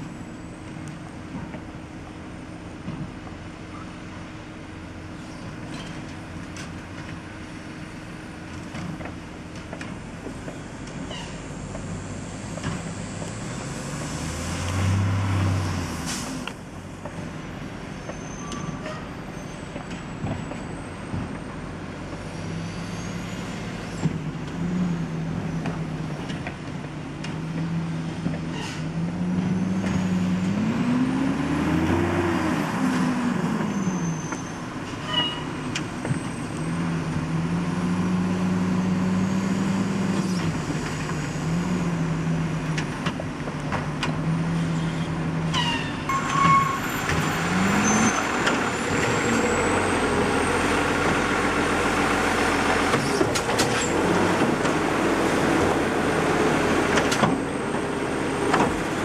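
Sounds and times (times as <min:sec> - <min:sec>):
garbage truck diesel engine revving: 0:12.2 - 0:16.5, 0:27.0 - 0:34.8, 0:35.5 - 0:45.6, 0:46.2 - 0:59.0.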